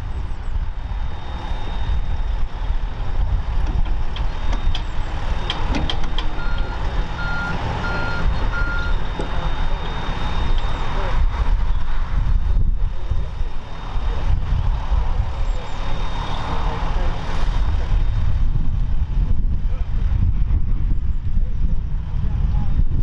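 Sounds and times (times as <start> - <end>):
excavator diesel engine running: 2.4 - 12.2
reversing alarm beeps: 4.4 - 11.1.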